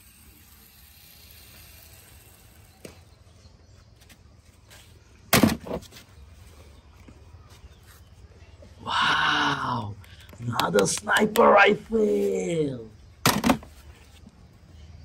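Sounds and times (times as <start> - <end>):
toys being handled: 10.0 - 14.3.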